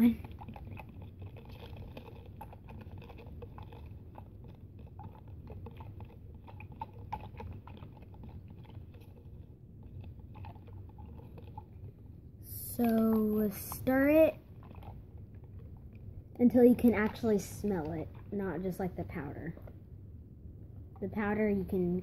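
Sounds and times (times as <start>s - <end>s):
straw stirring in plastic cup: 0.0s - 19.8s.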